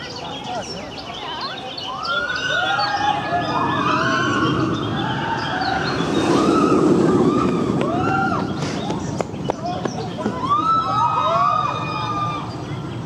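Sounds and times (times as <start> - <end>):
birds chirping faintly: 0.0 - 13.0
roller coaster rumbling on track: 0.0 - 13.0
riders screaming: 2.0 - 8.6, 10.3 - 12.6.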